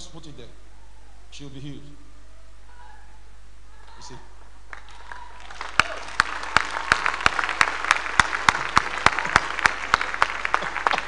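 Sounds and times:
crowd applauding: 4.7s - 11.0s
sharp claps close by: 4.7s - 11.0s.

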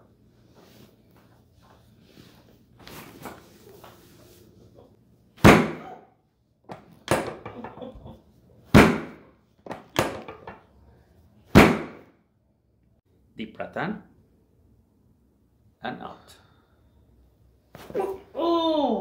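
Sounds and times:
drop table thumps: 5.4s - 5.9s, 6.7s - 7.8s, 8.7s - 10.6s, 11.6s - 12.0s.

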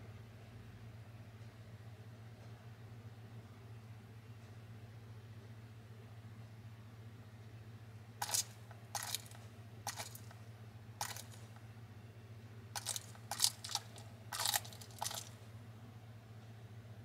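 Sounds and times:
lizard crunching insect shell: 8.2s - 10.4s, 11.0s - 11.5s, 12.8s - 15.4s.

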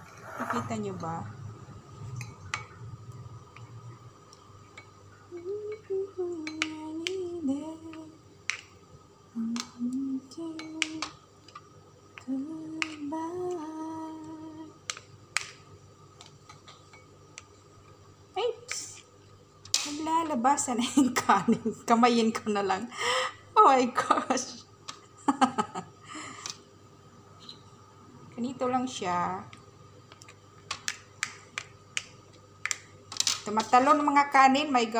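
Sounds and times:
woman humming: 5.3s - 8.1s, 9.4s - 11.0s, 12.2s - 14.8s.

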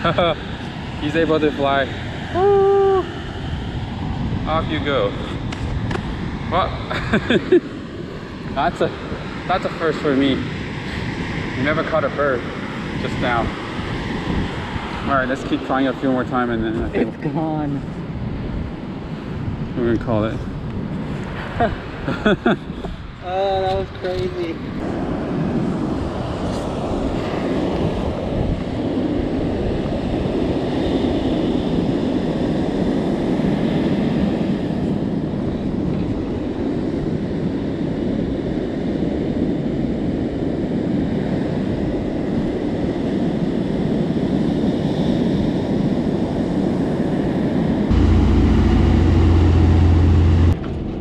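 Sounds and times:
wind buffeting microphone: 0.0s - 51.0s
boat engine humming: 47.9s - 50.7s
churning boat wake: 47.9s - 51.0s.

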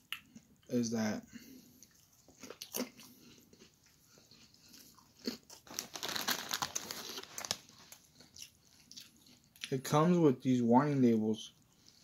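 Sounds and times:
crunchy snack being chewed: 1.8s - 9.7s.

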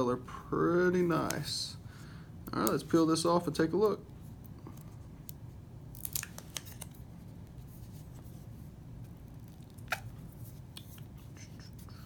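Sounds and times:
room hum: 0.0s - 12.0s.

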